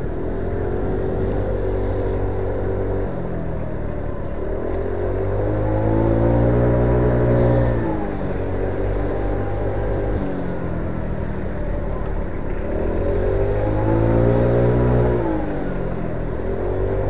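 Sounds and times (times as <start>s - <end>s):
steady low rumble: 0.0s - 17.0s
motor scooter engine revving: 12.6s - 17.0s.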